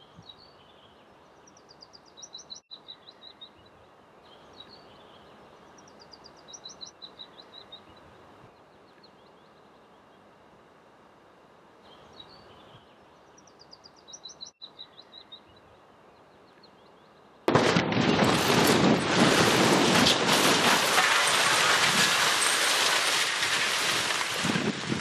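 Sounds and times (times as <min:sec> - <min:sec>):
faint bird chirps: 0:00.0 - 0:10.3, 0:11.8 - 0:17.4
demolition blast roar with cracks: 0:17.5 - 0:25.0.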